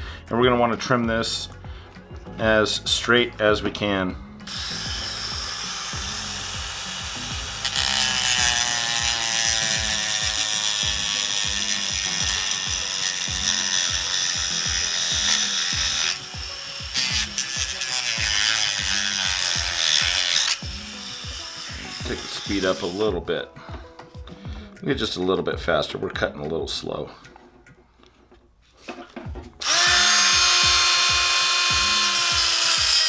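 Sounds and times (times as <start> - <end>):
background music with steady beat: 0.0 - 33.0
rotary tool cutting plastic: 4.5 - 23.1, 29.6 - 33.0.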